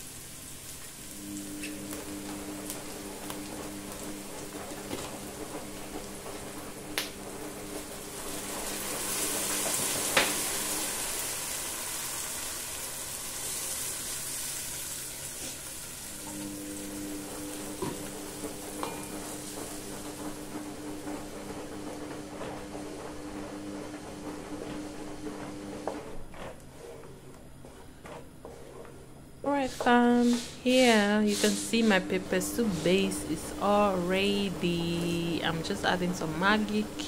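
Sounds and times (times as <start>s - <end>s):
onions sizzling in oil: 0.0s - 6.2s, 7.8s - 21.0s.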